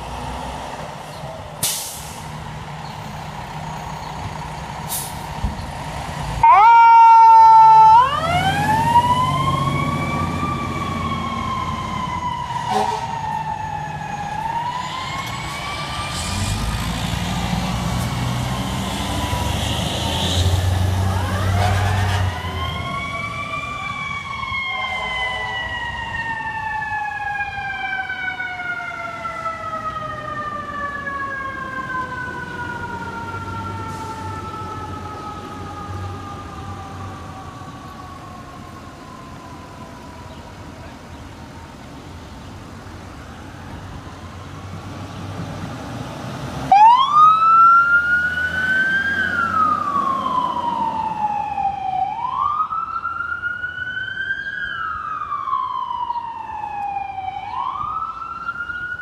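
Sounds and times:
fire truck siren wailing: 0:00.0 - 0:42.2, 0:45.6 - 0:59.0
truck engine rumbling: 0:00.0 - 0:53.9
second siren sweeping: 0:06.4 - 0:40.7, 0:46.7 - 0:59.0.

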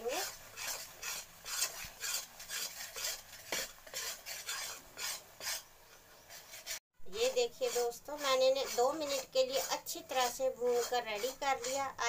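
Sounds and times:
spatula scraping a metal pan: 0:00.0 - 0:12.0.

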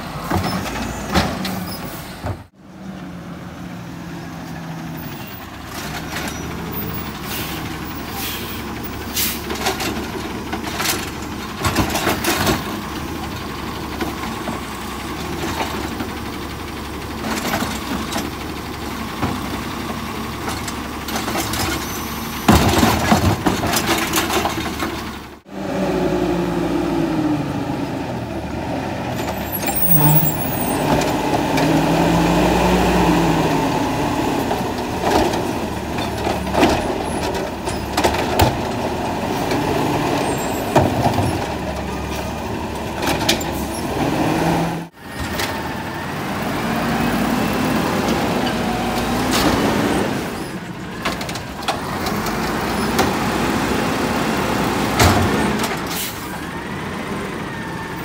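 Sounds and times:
garbage truck running: 0:00.0 - 0:58.0
trash cans clanking: 0:21.1 - 0:25.1
hydraulic arm lifting carts: 0:28.9 - 0:58.0.

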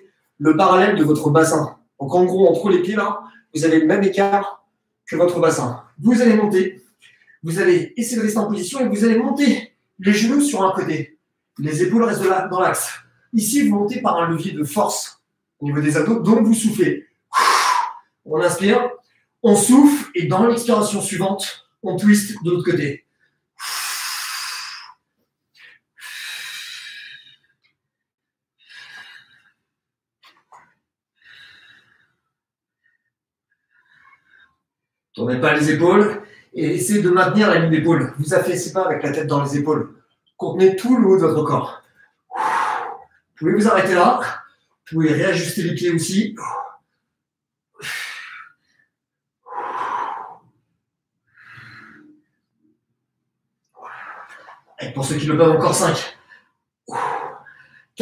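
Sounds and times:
man breathing hard: 0:17.3 - 0:18.2, 0:23.2 - 0:27.6, 0:28.6 - 0:29.8, 0:31.2 - 0:34.7, 0:41.8 - 0:43.4, 0:47.8 - 0:52.4, 0:56.2 - 0:58.0.

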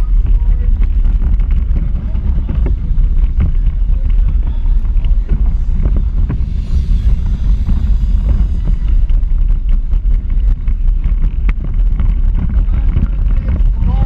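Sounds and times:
wind on microphone: 0:00.0 - 0:14.0.

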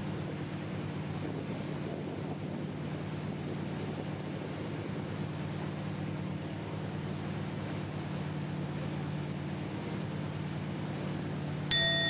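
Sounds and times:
boat engine droning: 0:02.4 - 0:12.0.

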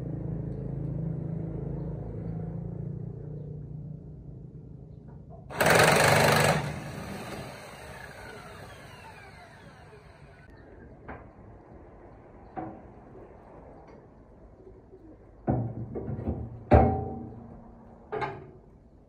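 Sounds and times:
impact wrench hammering: 0:05.5 - 0:10.3.

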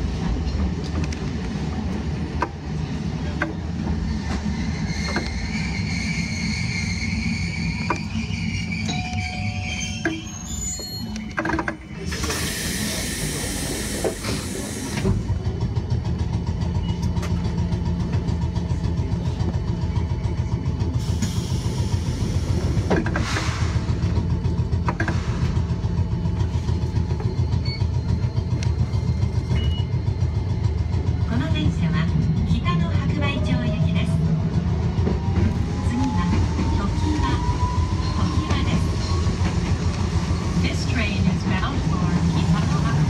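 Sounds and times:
tram low hum: 0:00.0 - 0:43.0
tram pulling away: 0:00.0 - 0:43.0
air hissing: 0:12.1 - 0:15.1.

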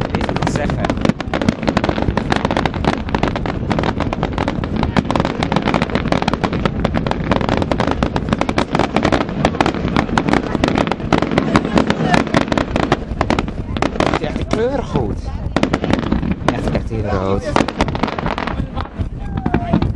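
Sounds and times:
fireworks bangs and crackles: 0:00.0 - 0:19.9.

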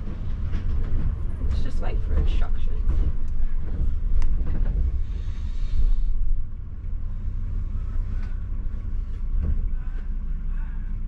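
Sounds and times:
coach engine and road rumble: 0:00.0 - 0:11.0.

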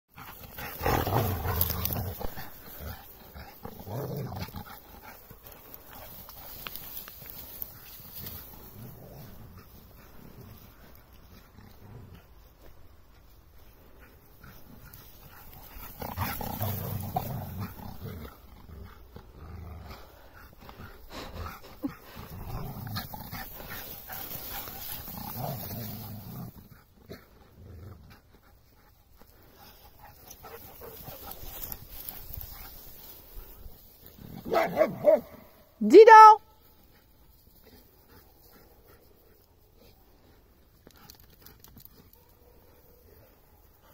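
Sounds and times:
dogs playing: 0:00.1 - 0:35.5
dog growling: 0:00.2 - 0:05.2, 0:15.6 - 0:28.0.

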